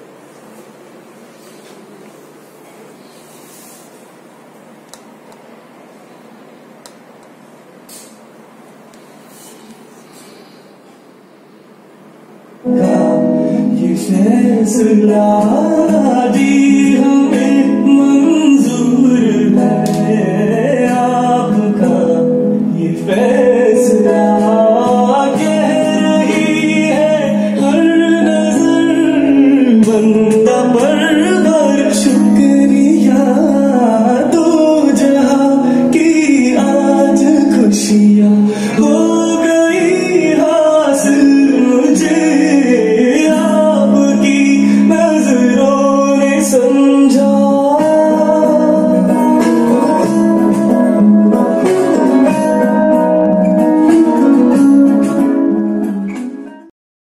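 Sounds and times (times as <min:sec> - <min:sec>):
song over a speaker: 0:12.6 - 0:56.7.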